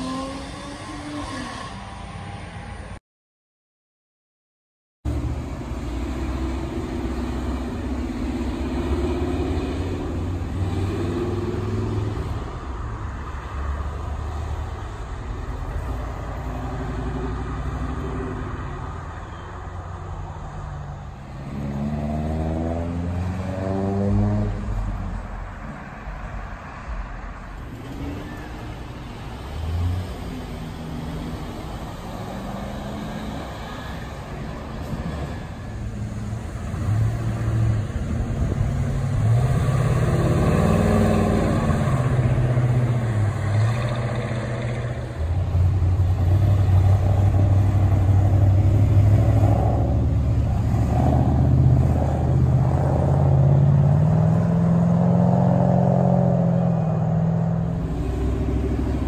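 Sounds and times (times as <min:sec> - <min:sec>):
cars driving past: 0:05.1 - 0:59.0
car accelerating hard: 0:36.8 - 0:59.0.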